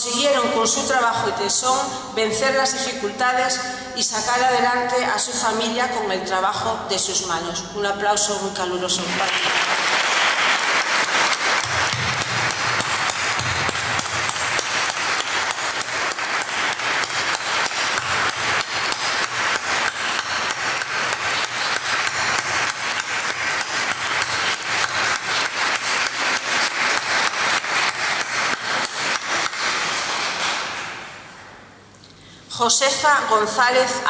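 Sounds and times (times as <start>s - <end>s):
audience applauding: 9.1s - 31.2s.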